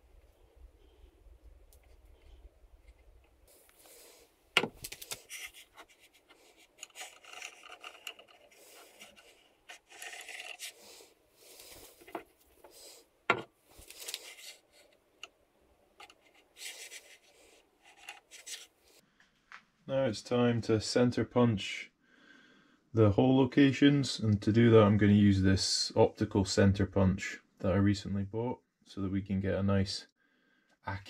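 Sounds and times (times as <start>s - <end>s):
scriber scraping steel: 5.2s - 12.8s.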